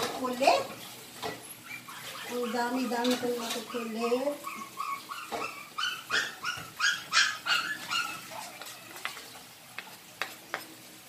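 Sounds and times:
small dogs yipping and whining: 1.4s - 9.4s.

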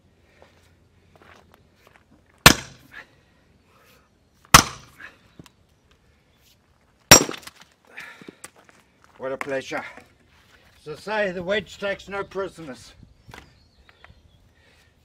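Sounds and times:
hammer striking steel wedge: 2.4s - 2.8s, 4.5s - 4.9s
wood cracking: 7.1s - 8.5s.

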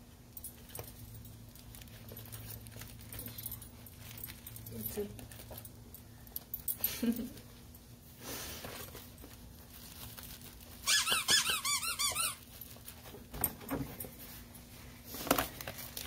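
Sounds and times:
squeaky dog toy squeaks: 10.8s - 12.5s.

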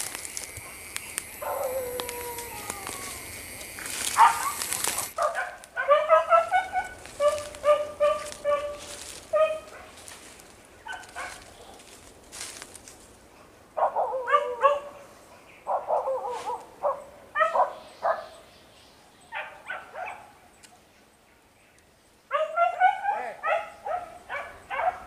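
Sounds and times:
dogs barking and yelping: 1.4s - 10.2s, 10.8s - 11.9s, 13.8s - 15.1s, 15.7s - 18.4s, 19.3s - 20.3s, 22.3s - 25.0s.

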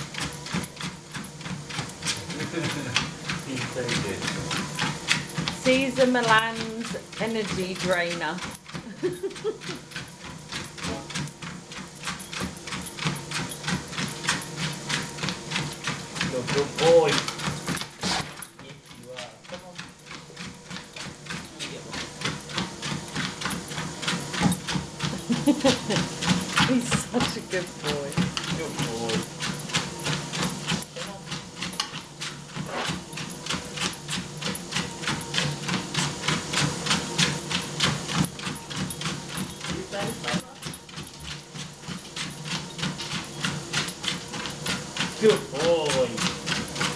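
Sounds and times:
dog paws pattering on treadmill: 0.0s - 46.9s
treadmill motor hum: 0.0s - 46.9s.

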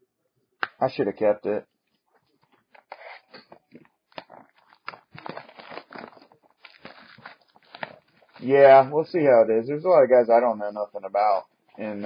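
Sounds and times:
plastic wrapping crinkling: 1.9s - 9.0s.

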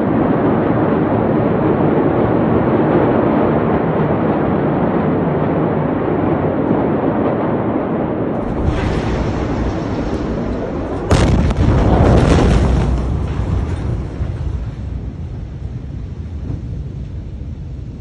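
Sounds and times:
low rumble: 0.0s - 18.0s
crashing debris: 8.4s - 14.7s
loud explosion bang: 8.4s - 15.2s.

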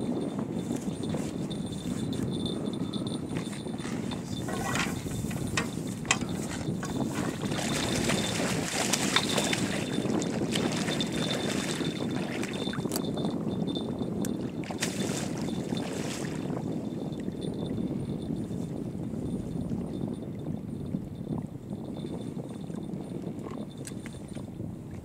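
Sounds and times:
wind on microphone: 0.0s - 25.0s
fishing tackle clicking and rustling: 0.4s - 13.4s.

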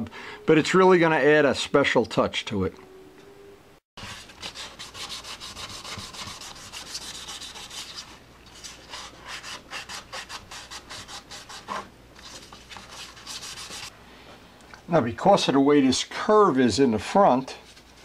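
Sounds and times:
sandpaper rubbing strokes: 4.0s - 13.9s.

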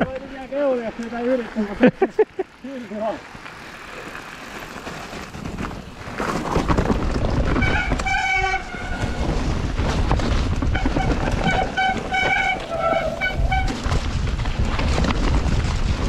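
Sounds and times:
bike tyres and frame rattling: 0.0s - 16.0s
disc brakes squealing: 10.8s - 13.9s.

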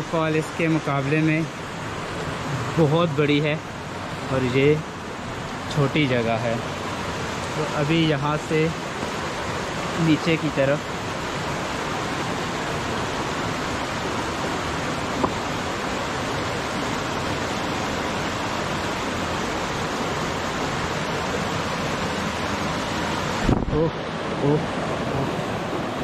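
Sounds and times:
stream rushing over boulders: 0.0s - 26.0s.

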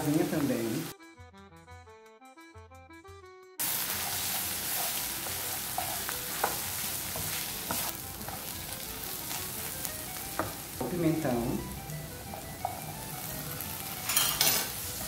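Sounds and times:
onions sizzling in a pan: 0.0s - 0.9s, 3.6s - 15.0s
spatula scraping a pan: 3.6s - 9.5s.

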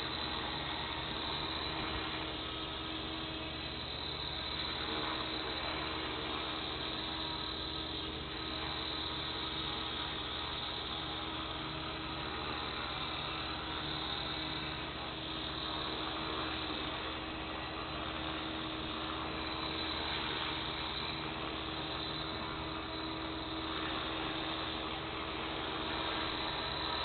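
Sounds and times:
rc helicopter hovering: 0.0s - 27.0s.

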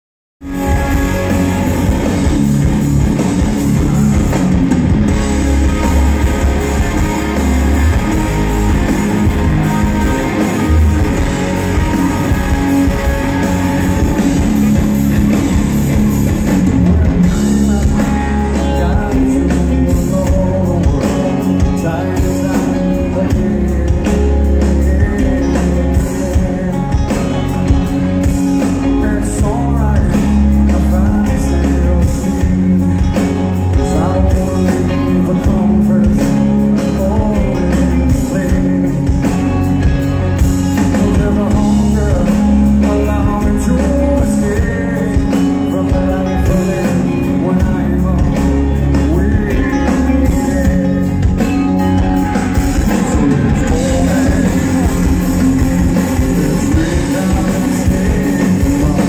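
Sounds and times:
drum kit: 0.4s - 59.0s
electric guitar: 0.4s - 59.0s
live rock band playing: 0.4s - 59.0s
person singing: 16.6s - 59.0s.

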